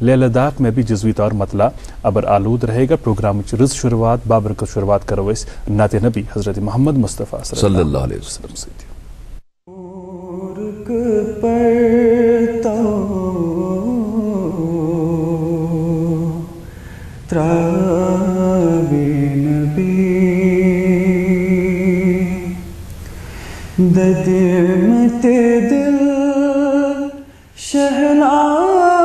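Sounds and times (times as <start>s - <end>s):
man singing devotional song: 9.7s - 16.7s, 17.3s - 22.7s, 23.8s - 29.0s.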